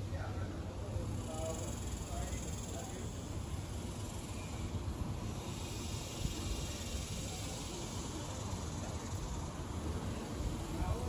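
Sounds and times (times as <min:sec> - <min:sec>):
steady hiss: 0:00.0 - 0:11.0
wind rustling large leaves: 0:00.0 - 0:11.0.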